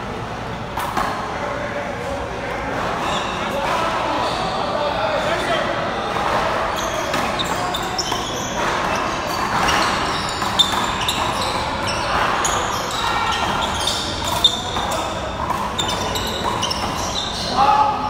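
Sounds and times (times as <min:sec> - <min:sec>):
sneakers squeaking on court: 0:03.0 - 0:03.6, 0:06.2 - 0:17.6.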